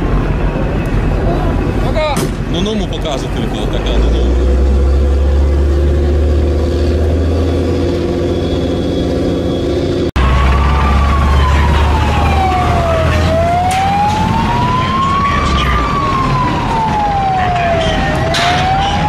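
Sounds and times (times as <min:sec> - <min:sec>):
low engine rumble: 0:00.0 - 0:19.0
siren wailing: 0:07.1 - 0:19.0.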